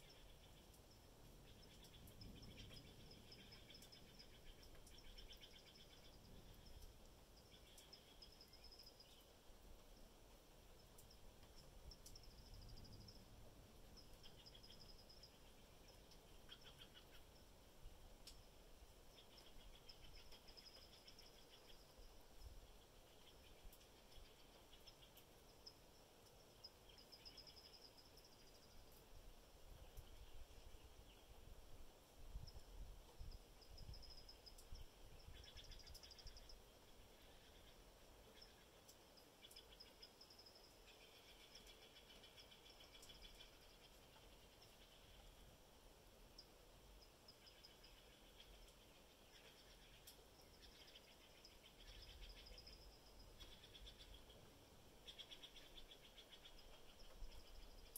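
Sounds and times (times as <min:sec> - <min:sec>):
small birds trilling: 0:12.0 - 0:17.5, 0:47.0 - 0:57.9.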